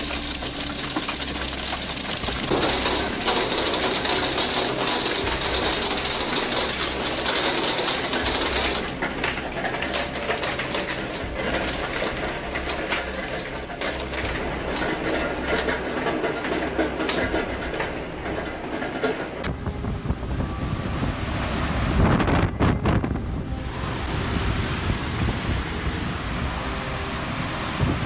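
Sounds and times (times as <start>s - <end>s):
hail pelting wood and glass: 0.0s - 19.4s
wind: 0.0s - 28.0s.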